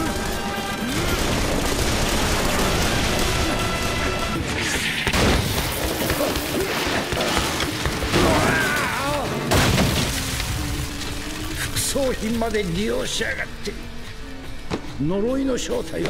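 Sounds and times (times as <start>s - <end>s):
gunfire: 0.0s - 8.6s
crashes and booms: 0.0s - 11.5s
music: 0.0s - 16.0s.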